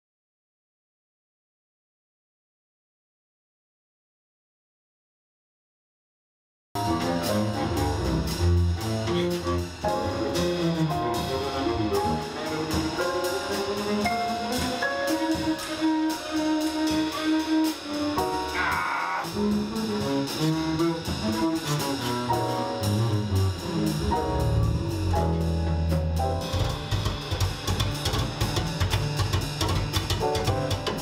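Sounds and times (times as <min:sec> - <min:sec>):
drum kit cymbals: 0:06.8 - 0:31.0
piano: 0:06.8 - 0:31.0
lead melody line: 0:19.3 - 0:29.4
upright bass walking: 0:19.4 - 0:31.0.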